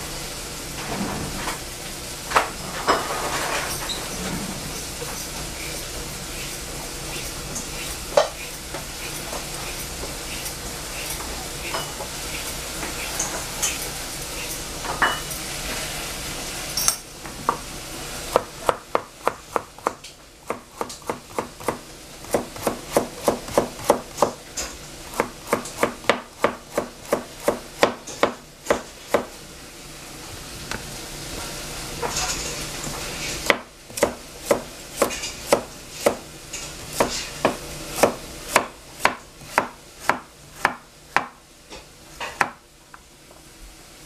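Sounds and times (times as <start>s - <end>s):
food sizzling in pan: 1.4s - 16.8s
knife chopping on cutting board: 18.3s - 24.4s, 25.1s - 29.3s, 33.4s - 36.2s, 36.8s - 41.4s, 42.2s - 42.6s.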